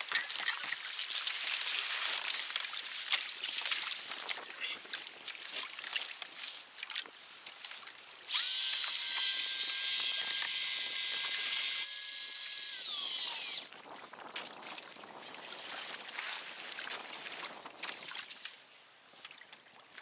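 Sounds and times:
electric fishing reel motor whine: 0:08.3 - 0:14.5.

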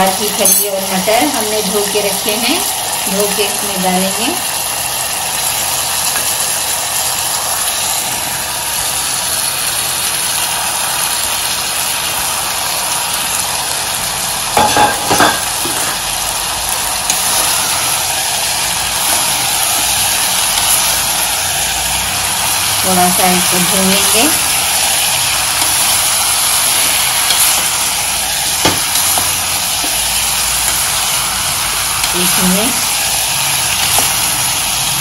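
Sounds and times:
vegetables sizzling in oil: 0:00.0 - 0:35.0
ladle stirring vegetables: 0:15.4 - 0:22.8, 0:23.4 - 0:35.0.

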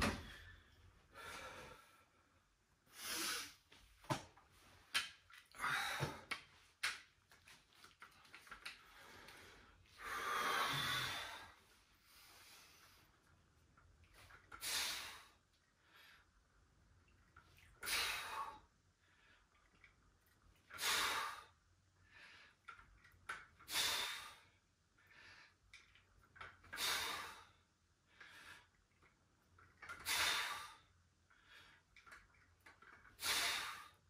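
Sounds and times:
faint breaths: 0:08.7 - 0:13.4
man breathing out forcefully: 0:09.0 - 0:11.6.

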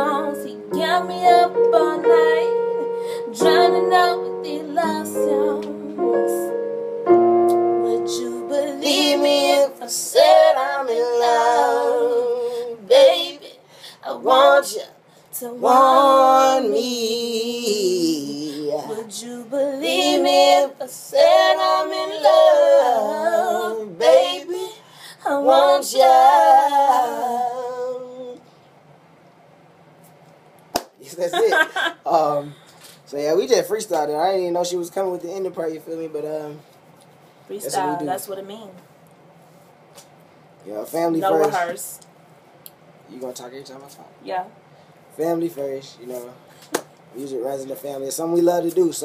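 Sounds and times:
woman singing with vibrato: 0:00.0 - 0:06.6, 0:07.8 - 0:16.6, 0:18.8 - 0:28.3, 0:37.6 - 0:38.4
held keyboard notes: 0:00.0 - 0:10.8.

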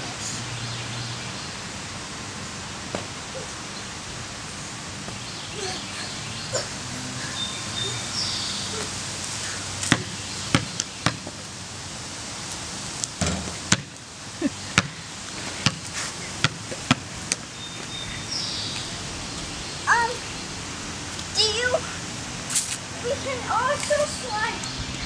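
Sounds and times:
basketball bouncing on concrete: 0:09.9 - 0:11.4, 0:13.2 - 0:14.0, 0:14.8 - 0:15.0, 0:15.6 - 0:17.4.

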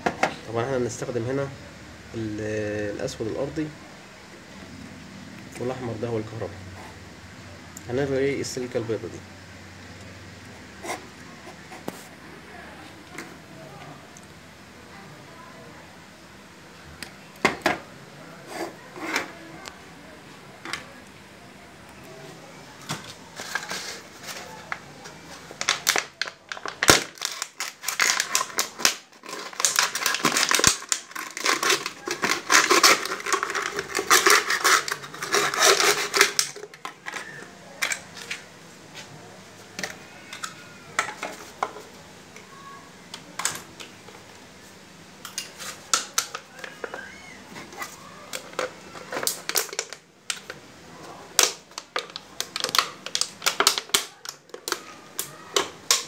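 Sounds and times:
plastic bottle crinkling: 0:22.9 - 0:38.4, 0:47.7 - 0:50.6, 0:51.3 - 0:56.0.

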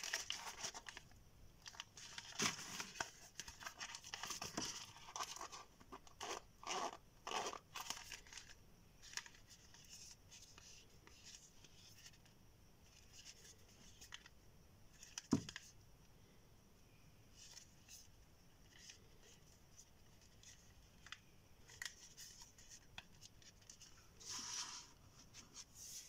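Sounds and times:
wallet rustling and scraping: 0:01.6 - 0:12.2, 0:21.6 - 0:26.0.

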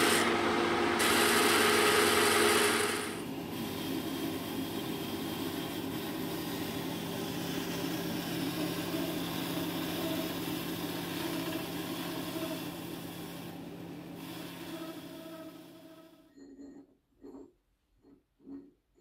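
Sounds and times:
lathe cutting metal: 0:00.0 - 0:13.4
motor hum: 0:00.0 - 0:16.3.

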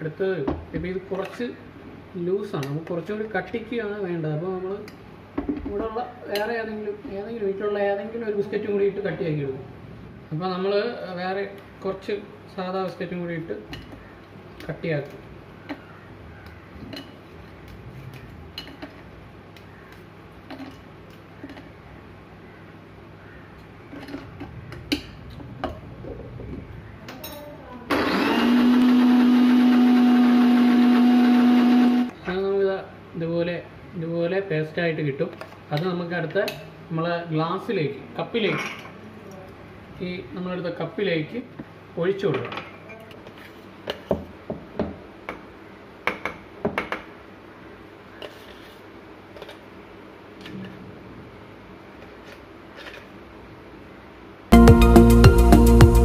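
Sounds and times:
mixer grinder motor humming: 0:27.9 - 0:32.1.

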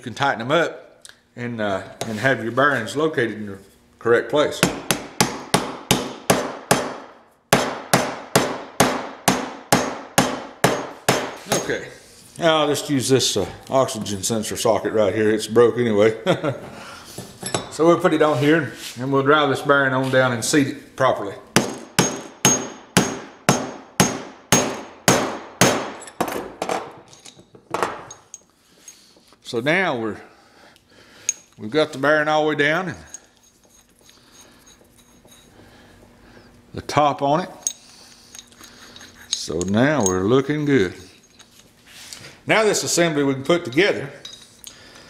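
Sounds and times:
light metal knocks and clinks: 0:17.4 - 0:17.8, 0:37.6 - 0:40.4, 0:44.2 - 0:44.8
mallet striking steel tube: 0:21.6 - 0:26.0
hammer ringing metal clangs: 0:21.6 - 0:26.2.

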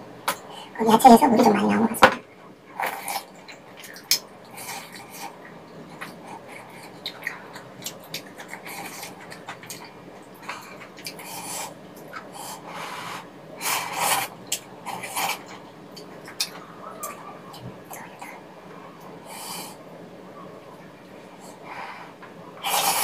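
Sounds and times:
chewing and wet mouth clicks: 0:10.8 - 0:11.2
slurping noodles: 0:22.6 - 0:23.0.

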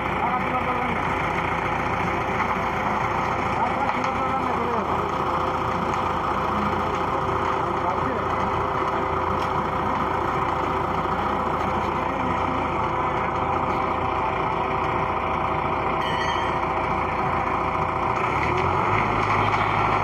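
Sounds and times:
concrete mixer truck running: 0:00.0 - 0:20.0
engine revving: 0:17.4 - 0:20.0.

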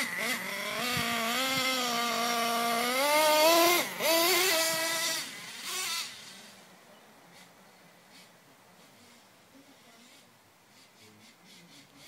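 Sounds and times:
small nitro engine revving: 0:00.0 - 0:06.7.

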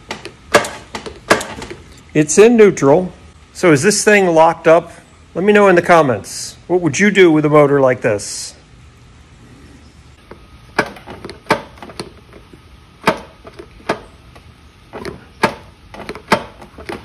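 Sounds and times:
sharp mechanical knock: 0:00.1 - 0:01.7, 0:10.8 - 0:12.0, 0:13.0 - 0:14.1, 0:15.0 - 0:17.0.

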